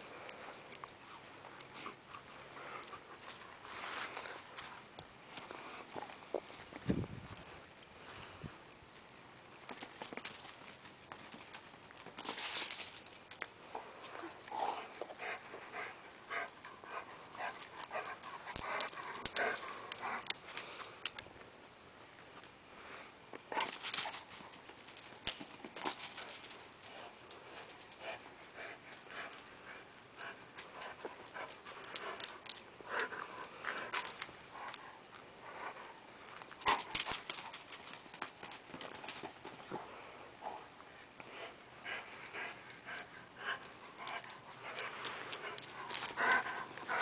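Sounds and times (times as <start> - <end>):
dog panting: 14.1 - 20.4, 26.9 - 36.0, 39.6 - 47.0.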